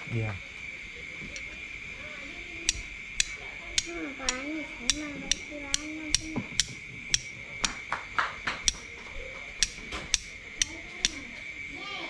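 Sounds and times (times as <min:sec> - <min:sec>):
steel striker clicking on flint: 0:01.3 - 0:01.5, 0:02.6 - 0:07.9, 0:08.5 - 0:11.5.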